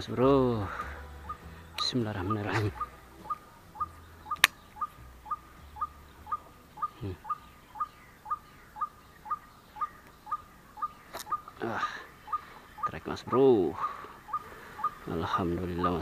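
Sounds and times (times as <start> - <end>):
bird repeating short rising call: 1.2 - 16.0
sharp click: 4.3 - 4.7, 11.1 - 11.4.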